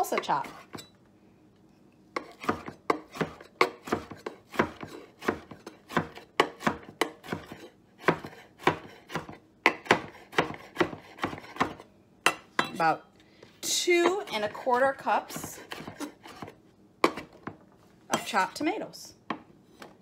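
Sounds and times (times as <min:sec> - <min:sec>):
knife chopping on wooden board: 0:02.2 - 0:11.8, 0:15.3 - 0:17.6.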